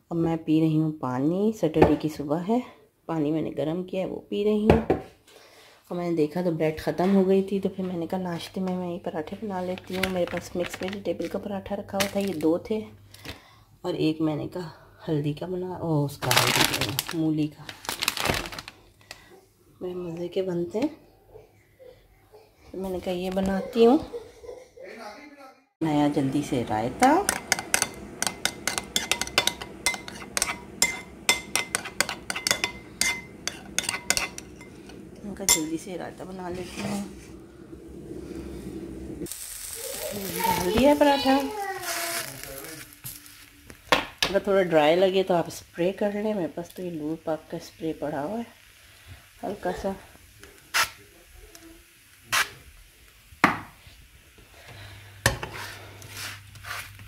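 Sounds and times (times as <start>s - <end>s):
bread sizzling in a pan: 25.8s - 57.0s
cooking spray hissing: 25.8s - 57.0s
spatula knocking against pan: 27.2s - 35.0s
spoon clinking against glass bowl: 27.3s - 35.7s.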